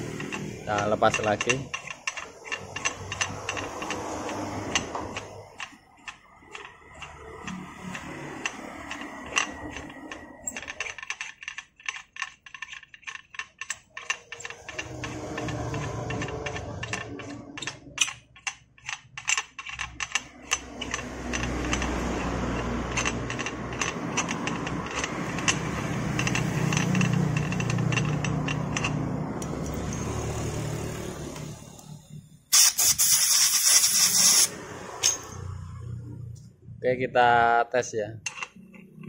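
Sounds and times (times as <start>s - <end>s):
tap wrench clicking: 0.0s - 30.0s, 38.2s - 39.0s
steady mechanical rumble: 0.0s - 32.5s
air blowing hiss: 32.5s - 34.6s.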